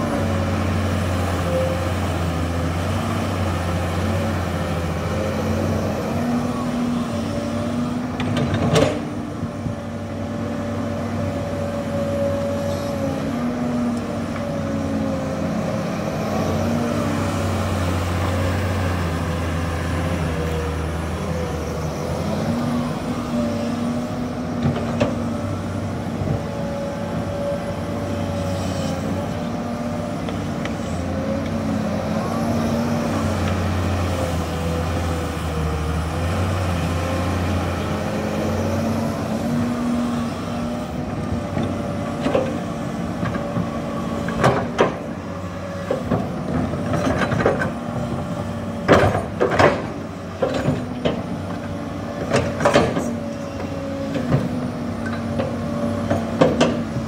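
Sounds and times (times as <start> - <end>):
excavator diesel engine running: 0.0 - 57.0
sharp knocks and clanks: 48.9 - 51.2.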